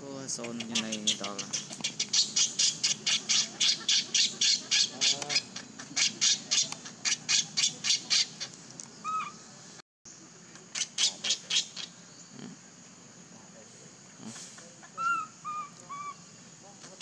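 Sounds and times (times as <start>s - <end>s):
baby monkey screaming: 0.4s - 9.4s, 14.8s - 16.2s.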